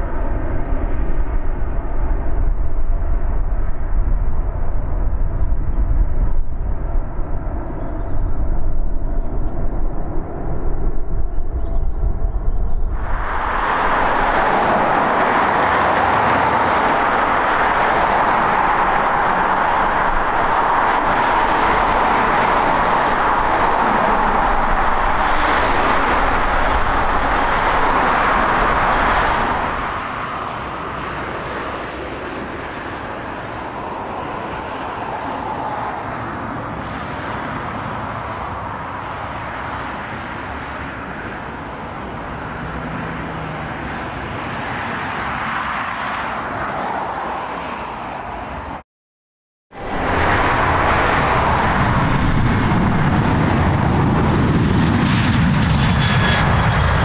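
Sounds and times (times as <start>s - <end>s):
vehicle and aircraft engine roar: 0.0s - 48.8s, 49.7s - 57.0s.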